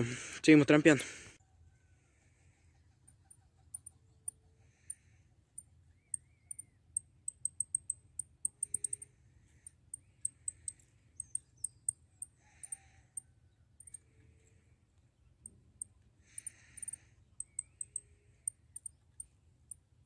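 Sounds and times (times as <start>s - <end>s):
finches chirping: 5.9s - 12.0s, 15.8s - 19.8s.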